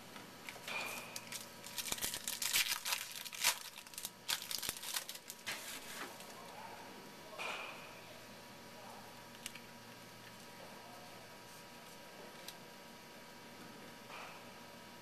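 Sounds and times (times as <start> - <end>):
wrapper tearing and crinkling: 0.5 - 6.3.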